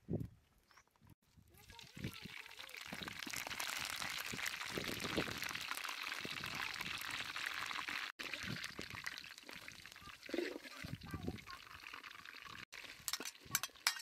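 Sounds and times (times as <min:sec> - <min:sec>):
water pouring and splashing: 0:01.6 - 0:14.0.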